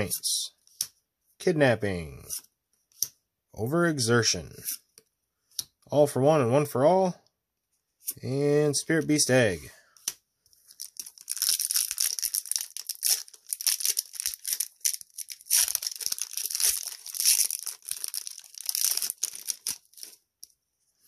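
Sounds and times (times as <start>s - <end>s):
wrapper tearing and crinkling: 10.6s - 20.5s.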